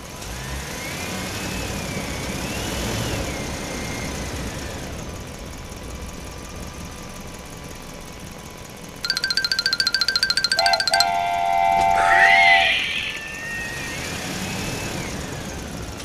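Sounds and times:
whine rising and falling in pitch: 11.1s - 15.0s.

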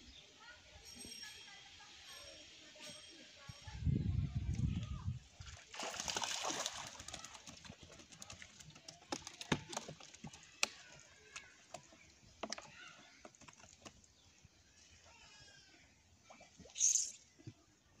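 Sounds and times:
fish splashing in water: 5.5s - 10.7s
fish flapping against plastic crate: 5.8s - 10.8s.

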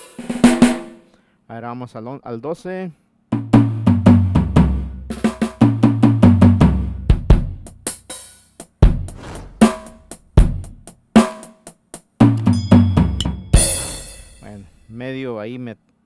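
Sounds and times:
drum pad tom fills: 9.0s - 10.9s
snare hits: 9.1s - 10.6s.

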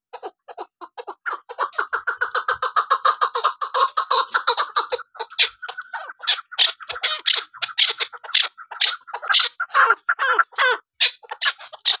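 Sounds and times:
partridge calling: 0.1s - 12.0s.

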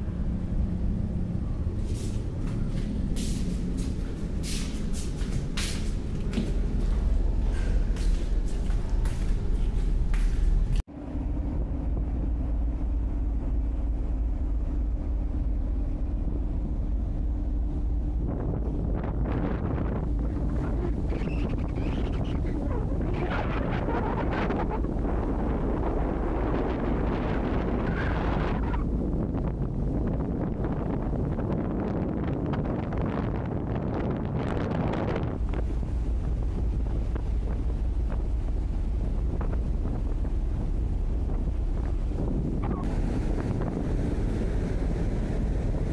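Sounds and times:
constant hum: 0.0s - 45.9s
ferry engine rumble: 0.0s - 45.9s
wind on microphone: 0.0s - 45.9s.

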